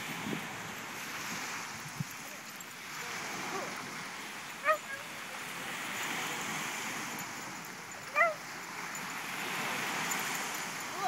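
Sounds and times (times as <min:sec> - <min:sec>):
surf washing: 0:00.0 - 0:11.0
dog yelping: 0:04.6 - 0:05.1, 0:08.0 - 0:08.4.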